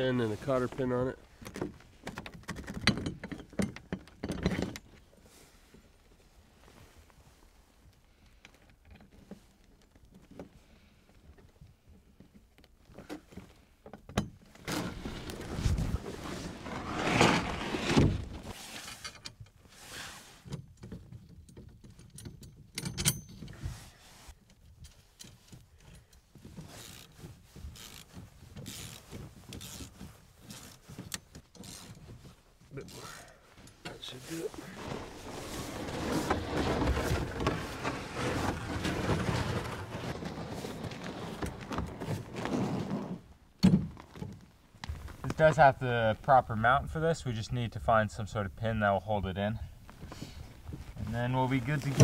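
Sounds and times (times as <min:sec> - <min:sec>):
metal tools clinking and rattling: 0:21.4 - 0:23.6.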